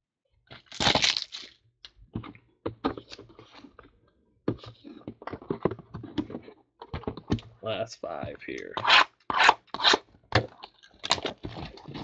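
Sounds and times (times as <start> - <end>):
foil wrapper crinkling: 0.5 - 1.6.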